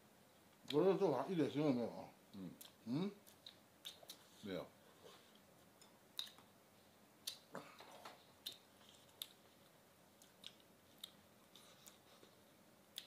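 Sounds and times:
chewing and mouth noises: 2.3 - 4.4, 5.3 - 6.5, 7.2 - 13.0.

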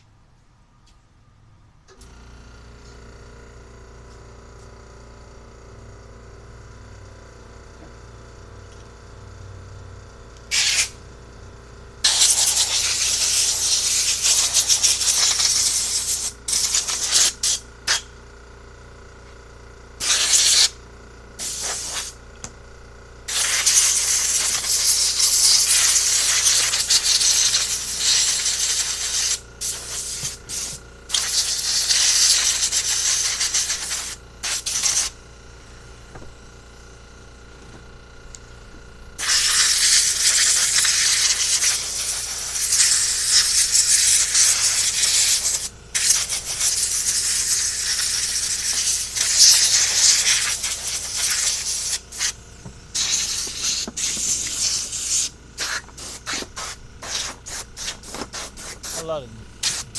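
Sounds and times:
compressed air blow gun hissing: 10.5 - 10.9, 12.0 - 18.0, 20.0 - 20.7, 21.4 - 22.2, 23.3 - 35.2, 39.2 - 59.9.

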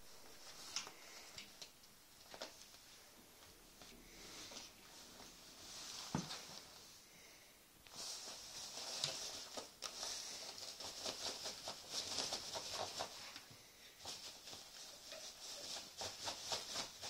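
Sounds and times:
cat pawing rustling fabric: 3.7 - 6.9, 7.9 - 17.0.

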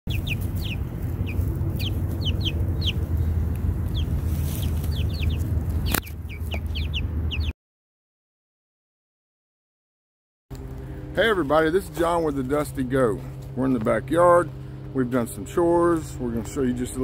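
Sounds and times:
steady low rumble: 0.1 - 7.5, 10.5 - 17.0
young chickens peeping: 0.1 - 7.5
sharp click: 5.9 - 6.2.

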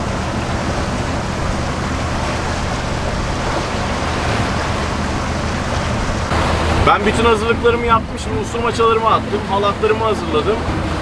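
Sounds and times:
low boat engine hum: 0.0 - 11.0
wind and water rushing along hull: 0.0 - 11.0.

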